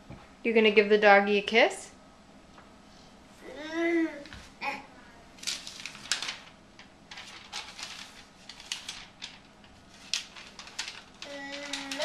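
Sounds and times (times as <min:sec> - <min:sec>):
paper card crinkling: 0:05.4 - 0:12.0.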